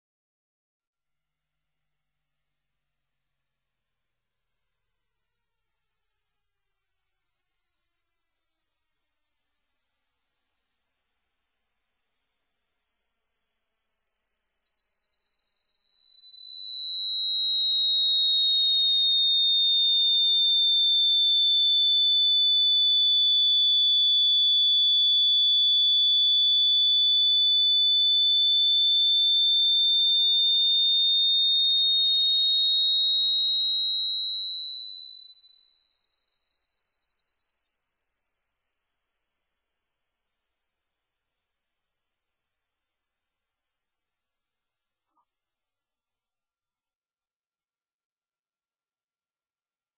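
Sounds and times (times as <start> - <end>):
electronic tone: 4.6 - 10.6.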